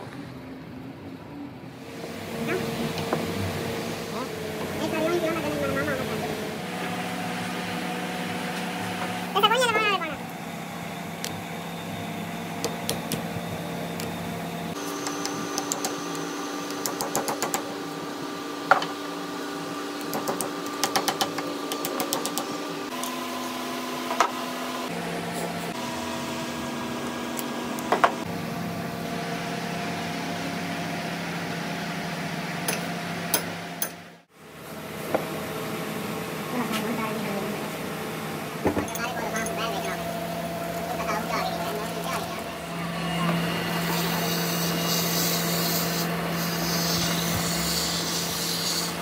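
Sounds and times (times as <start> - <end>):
electric motor humming: 1.8 - 28.4, 36.5 - 49.0.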